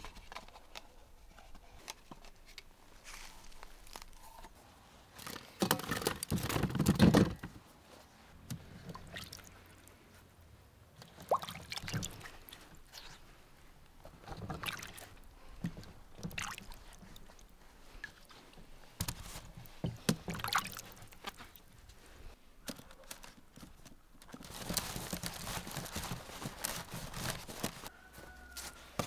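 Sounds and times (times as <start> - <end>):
water splashing in bowl: 8.8 - 9.8, 11.2 - 12.6, 14.4 - 15.1, 16.2 - 17.2, 20.3 - 21.2.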